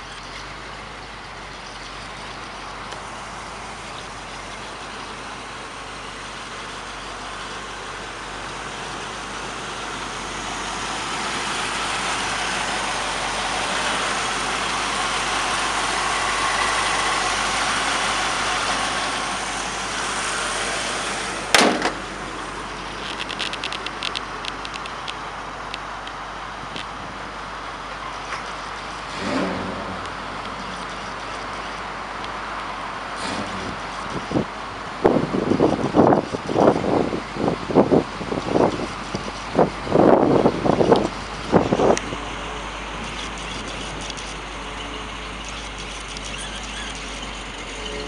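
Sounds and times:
truck engine idling: 0.0s - 48.0s
hood slamming shut: 21.5s - 22.4s
light ticks: 23.0s - 27.0s.

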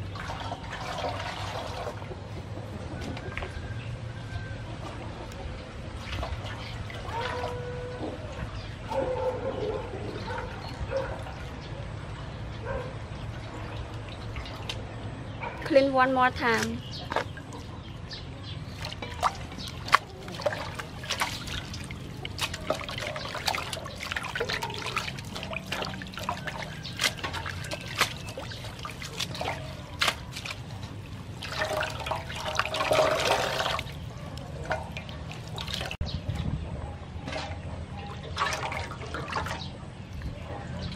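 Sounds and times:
water splashing in metal basin: 0.0s - 2.3s, 5.8s - 8.9s, 13.2s - 15.1s, 18.6s - 36.0s, 37.2s - 40.3s
water dripping: 18.7s - 36.0s.

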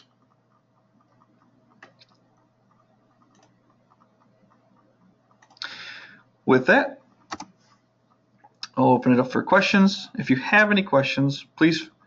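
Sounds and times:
computer mouse clicks: 0.0s - 5.8s, 7.2s - 8.8s.

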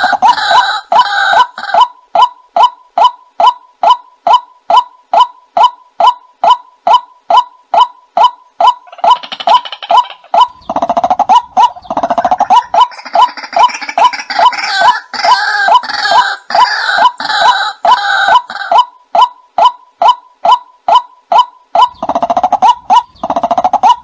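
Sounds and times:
chorus of bird calls: 0.0s - 24.0s
harsh rasping bird croaks: 8.7s - 18.9s, 21.8s - 24.0s.

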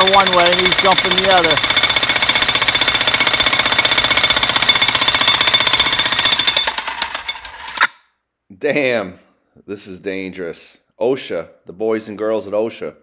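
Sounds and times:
jackhammer pounding stone: 0.0s - 8.0s.

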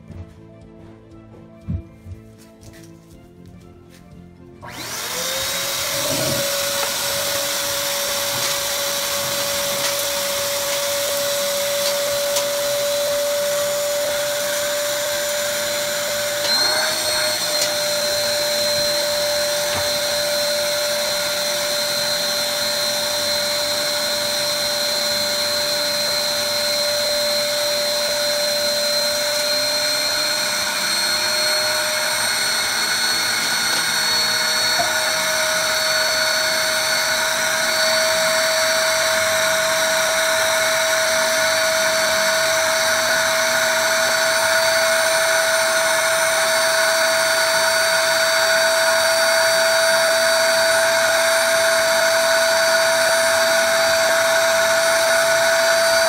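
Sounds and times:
vacuum motor whine: 4.6s - 56.0s
air rushing through hose: 5.0s - 11.5s.

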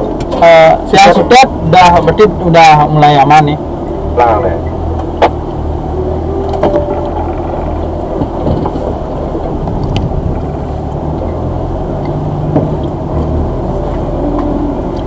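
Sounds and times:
off-road vehicle engine humming: 0.0s - 15.0s
vehicle knocks and rattles: 6.5s - 11.4s, 12.4s - 13.3s.

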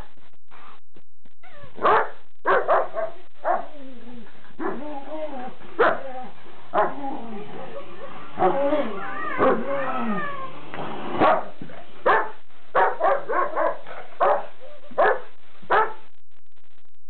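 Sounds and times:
dog barking sharply: 1.8s - 3.1s, 11.2s - 11.5s, 12.1s - 16.0s
dogs play growling: 3.7s - 12.0s.

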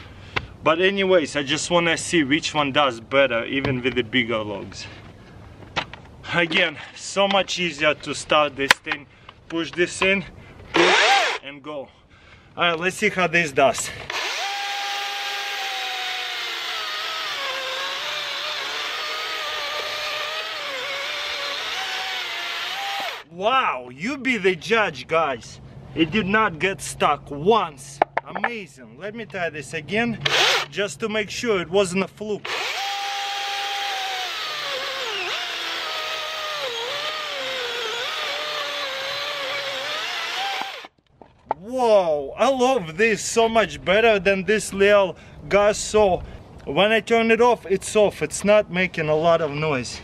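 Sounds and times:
chainsaw cutting log: 10.7s - 11.4s, 14.0s - 23.3s, 30.2s - 30.8s, 32.4s - 41.0s.

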